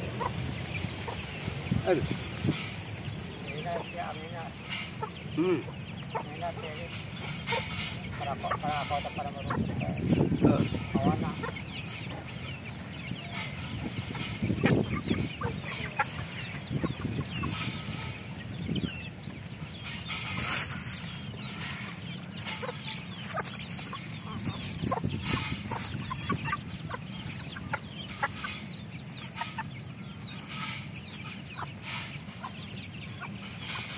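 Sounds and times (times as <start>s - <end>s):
chickens clucking and calling: 0.0s - 33.9s.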